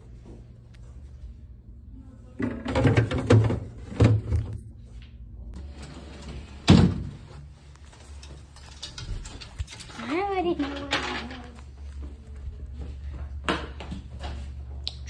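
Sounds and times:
freezer door and ice bin rattling: 2.4 - 4.5.

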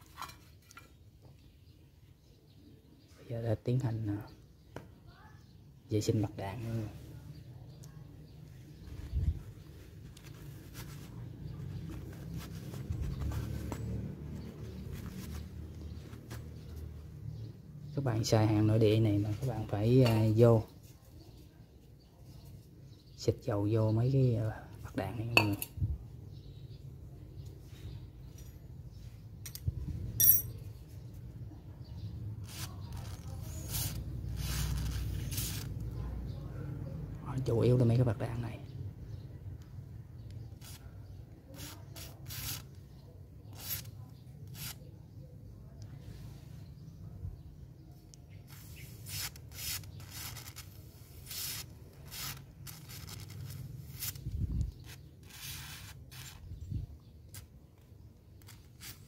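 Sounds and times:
sharp metallic clink: 30.2 - 30.6.

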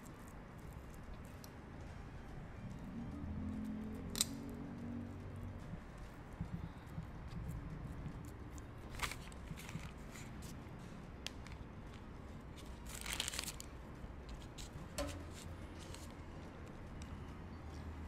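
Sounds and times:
low steady hum: 0.0 - 18.0
baking paper crinkling: 8.6 - 10.6, 11.2 - 13.8.

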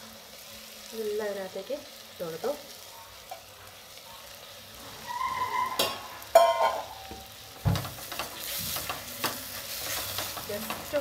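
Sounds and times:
rice sizzling in hot oil: 0.0 - 11.0
cup clinking against pan: 5.8 - 7.2.

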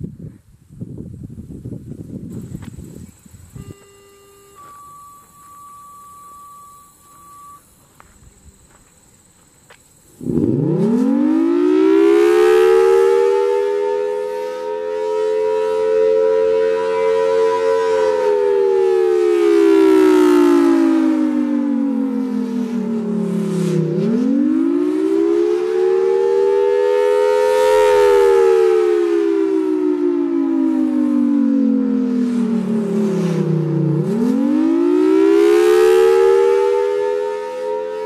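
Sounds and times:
rotating siren rising and falling: 10.2 - 38.0.

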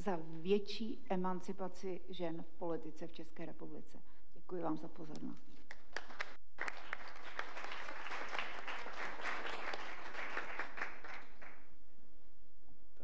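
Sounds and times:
audience applauding: 5.9 - 11.7.

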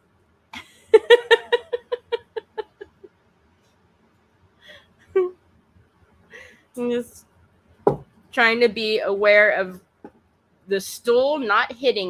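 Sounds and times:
woman laughing: 0.6 - 3.1, 5.1 - 5.4.

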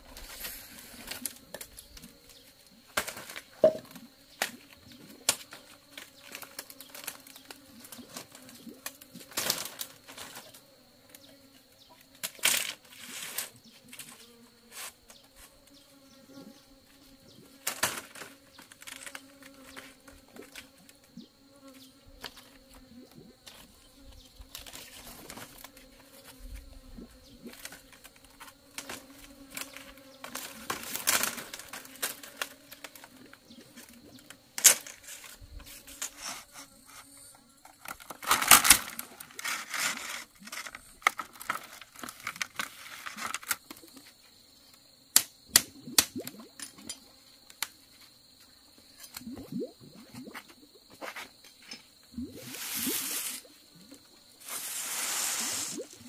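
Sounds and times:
bamboo strips clattering on concrete: 3.0 - 4.6, 37.7 - 43.8.

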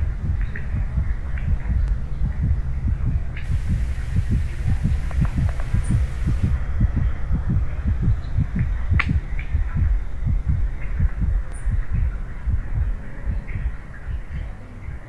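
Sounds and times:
fast low pulsing beat: 0.0 - 15.0.

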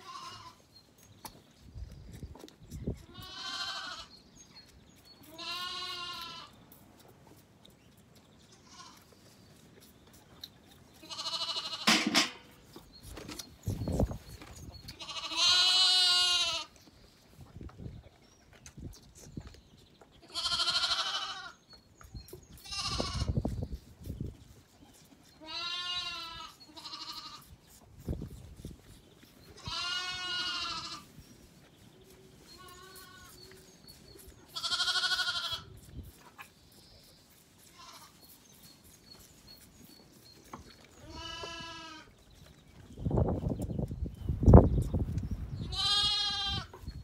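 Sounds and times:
lambs bleating: 0.0 - 0.6, 3.0 - 4.1, 5.2 - 6.6, 8.6 - 9.0, 11.0 - 12.3, 14.9 - 16.7, 20.2 - 21.6, 22.6 - 23.4, 25.4 - 27.5, 29.6 - 31.1, 32.5 - 33.5, 34.5 - 35.7, 37.7 - 38.2, 41.0 - 42.1, 45.6 - 46.8.

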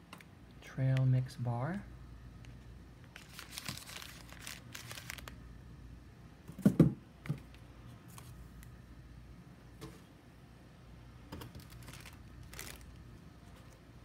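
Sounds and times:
plastic wrappers crinkling: 3.0 - 5.4, 11.4 - 13.8.

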